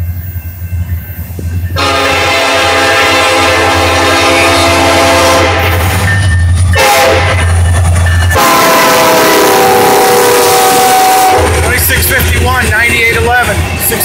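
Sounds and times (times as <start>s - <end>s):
diesel engines rumbling: 0.0s - 14.0s
locomotive air horn blasts: 1.8s - 6.1s, 6.8s - 7.5s, 8.3s - 11.6s.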